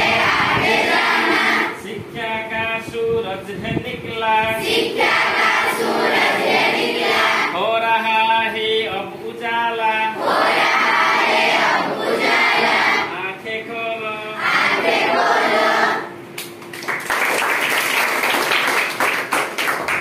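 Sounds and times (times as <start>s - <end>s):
girls singing together: 0.0s - 1.8s, 4.6s - 7.6s, 10.2s - 13.1s, 14.4s - 16.2s
girls clapping: 16.4s - 20.0s.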